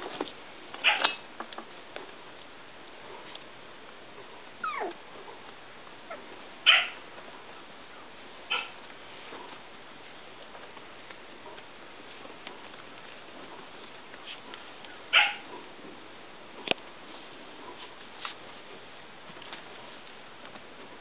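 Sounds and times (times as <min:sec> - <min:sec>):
puppies yipping: 0:00.8 - 0:01.2, 0:04.6 - 0:05.0, 0:06.0 - 0:07.0, 0:08.5 - 0:08.8, 0:15.1 - 0:15.5.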